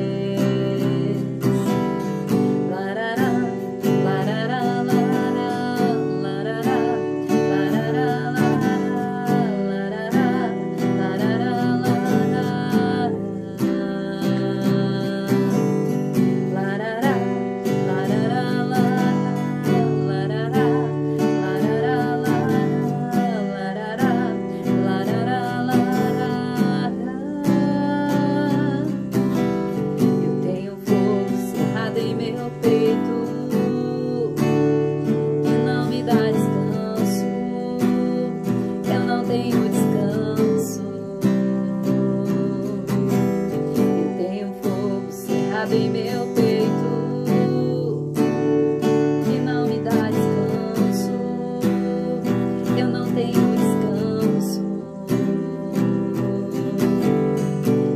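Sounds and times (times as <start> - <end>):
strummed acoustic guitar: 0.0 - 57.9
woman singing: 0.0 - 57.9.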